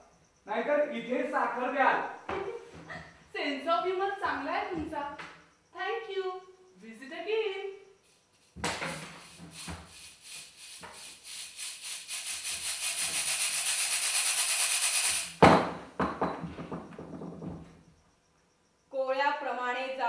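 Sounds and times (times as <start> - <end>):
soft knocks: 15.4 - 17.7.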